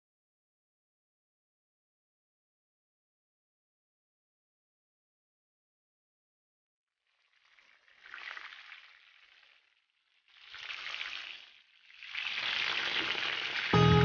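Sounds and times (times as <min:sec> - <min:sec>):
food sizzling in oil: 0:10.3 - 0:14.0
music: 0:13.8 - 0:14.0.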